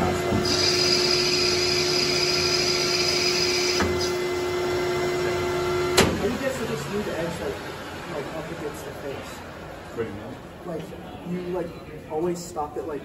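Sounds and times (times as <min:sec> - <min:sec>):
metal lathe humming: 0:00.0 - 0:09.5.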